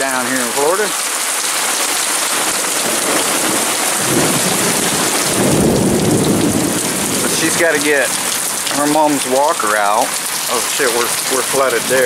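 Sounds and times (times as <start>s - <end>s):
heavy rain pouring: 0.0s - 12.0s
low rumble of thunder: 2.8s - 8.5s.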